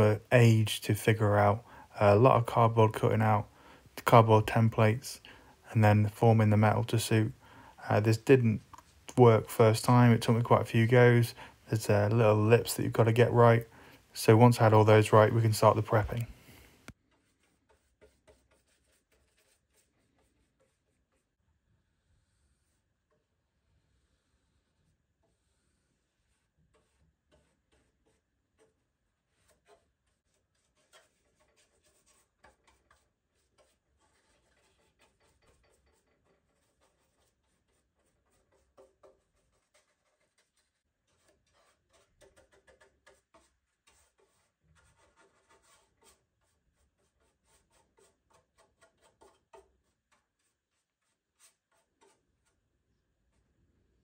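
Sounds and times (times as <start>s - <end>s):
paintbrush scratching on metal: 14.3s - 53.4s.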